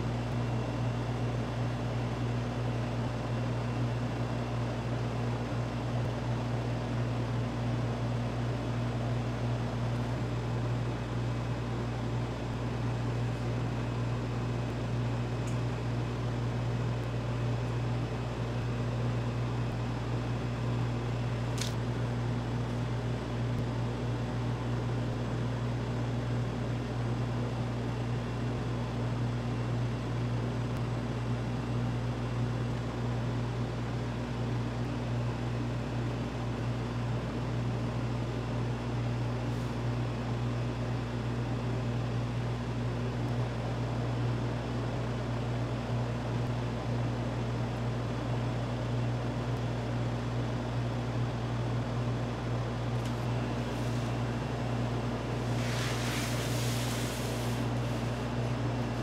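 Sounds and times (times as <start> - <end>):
machine electric hum: 0.0 - 59.0
light hiss: 55.3 - 58.2.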